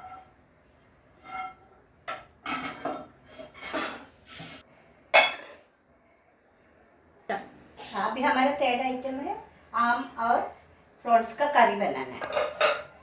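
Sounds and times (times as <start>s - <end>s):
glass scraping clatters: 2.5s - 4.1s
glass ringing clink: 5.2s - 5.6s.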